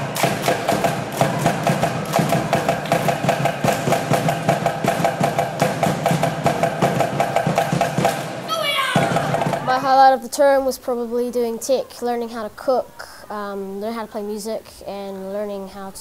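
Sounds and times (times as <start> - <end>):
people clapping in unison: 0.0 - 5.1, 7.9 - 8.4
fast percussion beat: 0.0 - 10.0.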